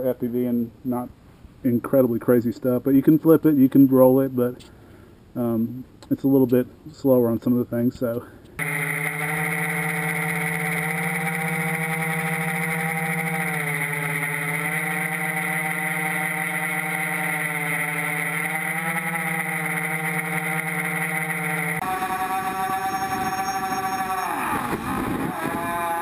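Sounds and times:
drone motors humming: 0:08.6 - 0:26.0.

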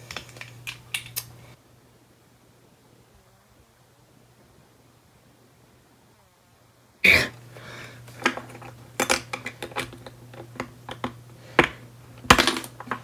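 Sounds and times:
plastic pieces snapping apart: 0:00.0 - 0:01.3, 0:08.1 - 0:13.0.

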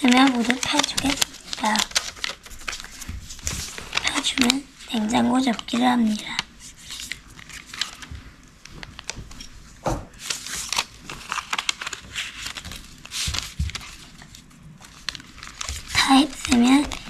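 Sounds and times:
paper rustling and crinkling: 0:00.0 - 0:17.0
hands thumping on floor: 0:09.8 - 0:10.2.

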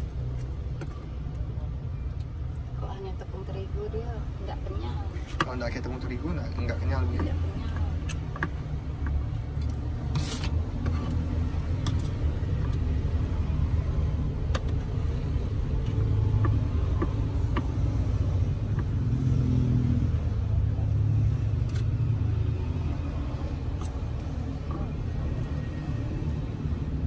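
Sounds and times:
road traffic rumble: 0:00.0 - 0:27.0
vehicle passing: 0:14.9 - 0:27.0.

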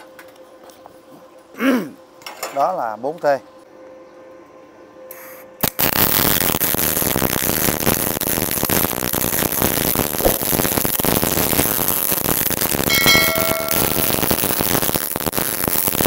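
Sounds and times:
welding arc crackling: 0:05.6 - 0:16.0
welding arc striking click: 0:12.6 - 0:15.7.

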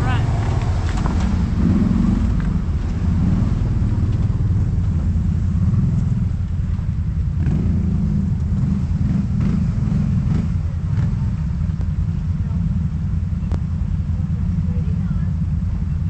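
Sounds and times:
atv engine rumbling: 0:00.0 - 0:16.0.

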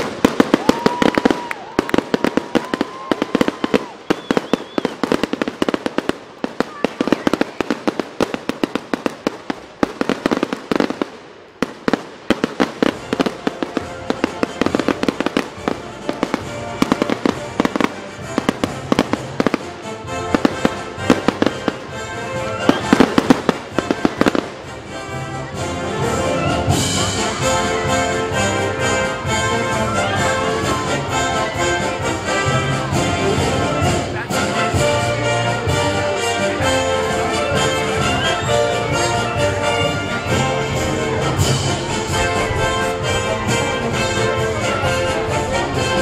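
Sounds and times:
fireworks bangs and crackles: 0:00.0 - 0:46.0
music: 0:11.9 - 0:46.0.

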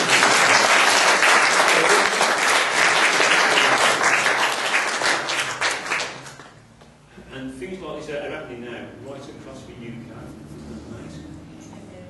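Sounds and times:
congregation clapping: 0:00.0 - 0:06.6.

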